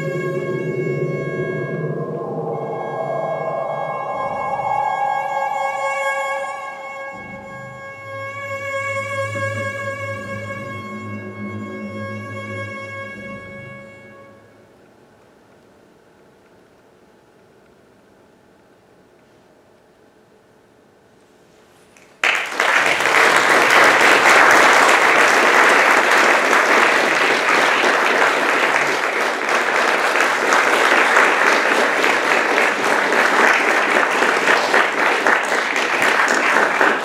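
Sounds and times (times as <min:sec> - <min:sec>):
audience applause: 0:22.2 - 0:37.0.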